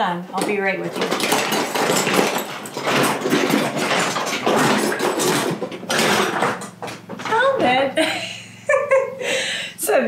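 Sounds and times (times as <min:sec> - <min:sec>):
metal utensils clattering in drawer: 0:00.4 - 0:06.8.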